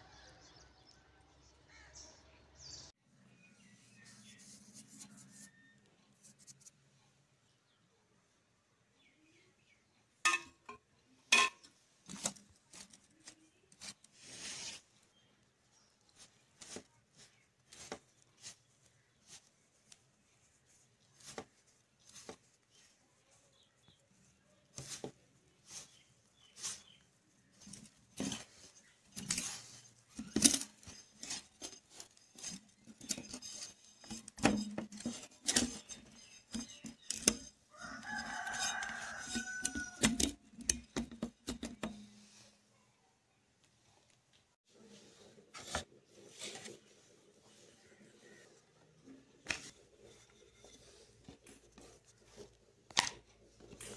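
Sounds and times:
hands mixing dough in bowl: 12.0s - 42.6s, 44.7s - 53.9s.

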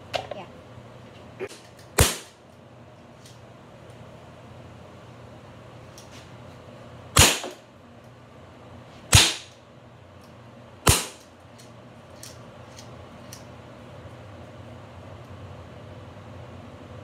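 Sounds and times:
bb gun shots: 2.0s - 2.3s, 7.2s - 7.6s, 9.1s - 9.5s, 10.9s - 11.2s.

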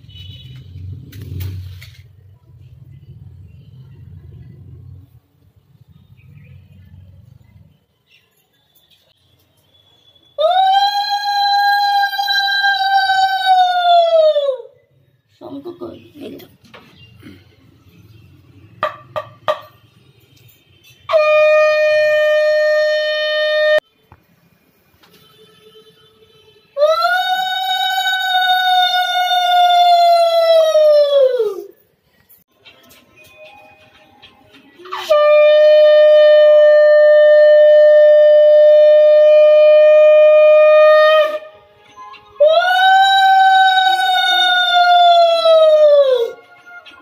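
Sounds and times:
conch shell blown: 21.0s - 23.9s, 34.9s - 41.7s.

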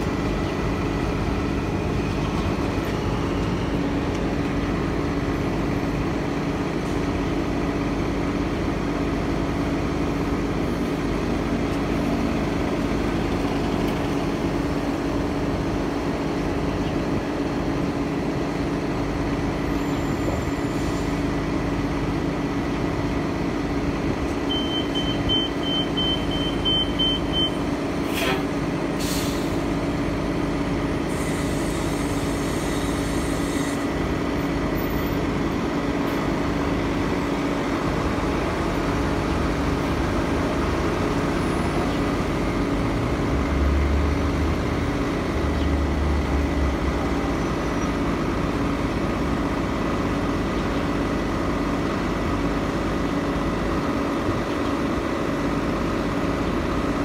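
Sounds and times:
bus engine idling: 0.0s - 57.0s
air brake hisses: 28.1s - 29.6s, 31.1s - 33.9s.

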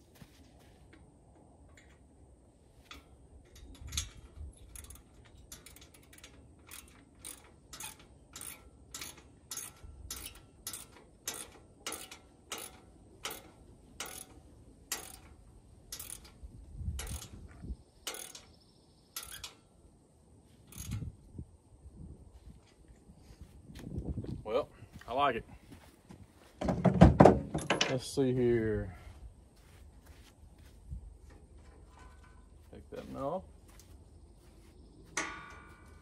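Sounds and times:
ratchet clicking: 2.9s - 16.4s, 17.0s - 17.4s, 18.0s - 18.5s, 19.2s - 19.6s, 20.7s - 21.1s.

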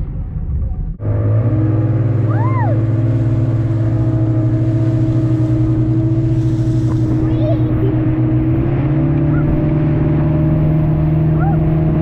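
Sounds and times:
outboard motor humming: 0.5s - 12.0s.

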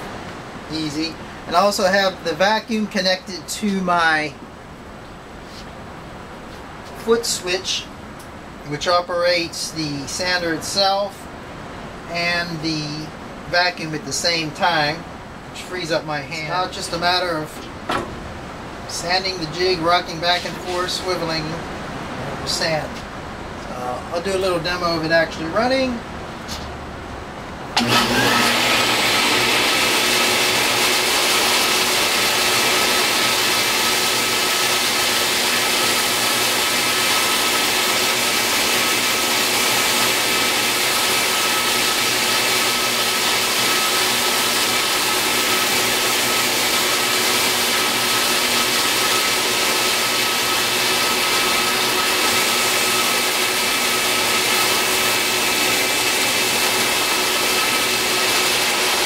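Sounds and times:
shop vacuum running: 19.0s - 23.0s, 27.8s - 59.0s
belt sander whining: 27.8s - 59.0s.

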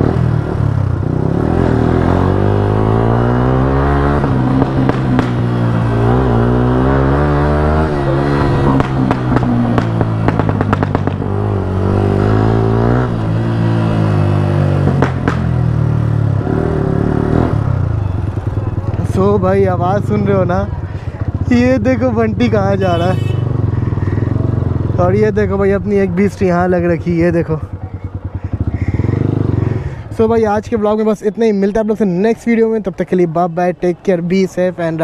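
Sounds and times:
motorcycle engine revving: 0.0s - 30.6s
exhaust pops and crackles: 4.5s - 5.6s, 8.6s - 11.3s, 14.8s - 15.6s.

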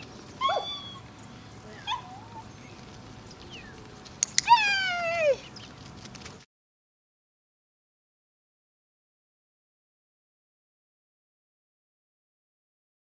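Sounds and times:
sharp clicks: 4.1s - 4.6s.

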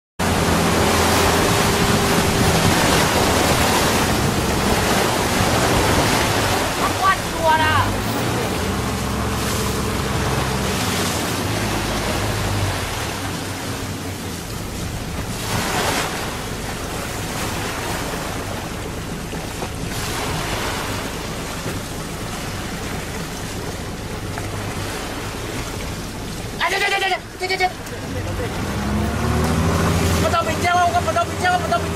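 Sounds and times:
low engine drone: 0.2s - 31.9s
water washing against boat: 0.2s - 31.9s
wind on microphone: 0.4s - 7.4s.

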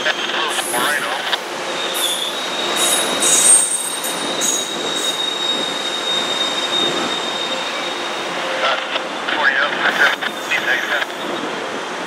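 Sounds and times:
wheels rumbling on rail: 0.0s - 12.0s
steel wheels squealing: 1.7s - 8.6s.

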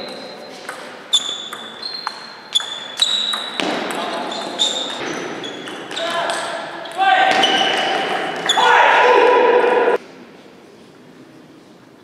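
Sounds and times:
table tennis ball hitting bats: 0.0s - 8.6s.

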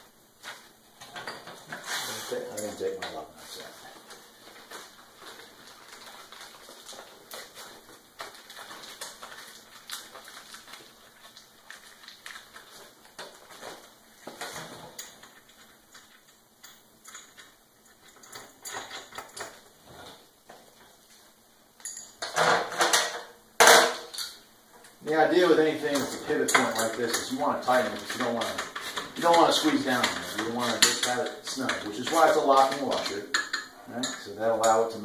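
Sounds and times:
plastic bag rustling: 3.4s - 16.2s
metal hardware clinking: 21.8s - 24.4s
parts clattering in tray: 21.8s - 24.4s, 25.8s - 34.9s.

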